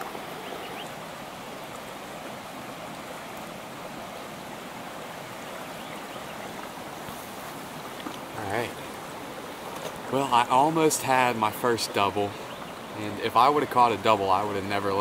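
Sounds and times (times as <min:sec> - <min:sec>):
stream flowing: 0:00.0 - 0:15.0.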